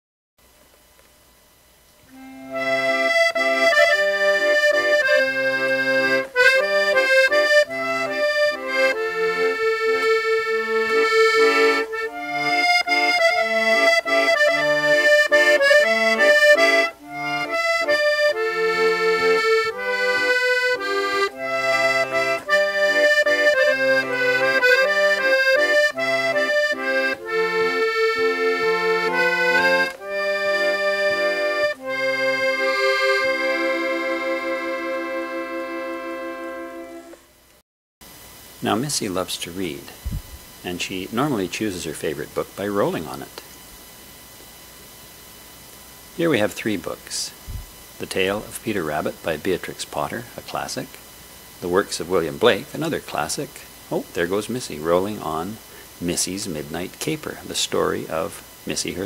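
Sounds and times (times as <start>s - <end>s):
accordion playing a tune: 2.1s - 37.3s, 40.7s - 43.4s, 51.6s - 59.0s.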